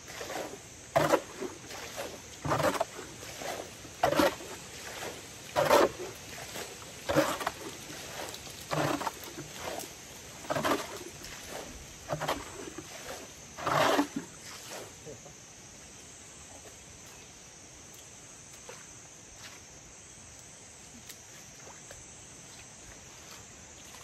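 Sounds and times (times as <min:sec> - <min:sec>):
water splashing from bucket: 0:00.0 - 0:15.0.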